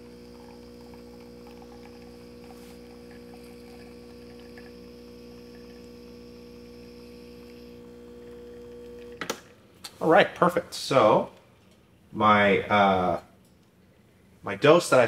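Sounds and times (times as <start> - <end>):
espresso machine pump humming: 0.0 - 9.6.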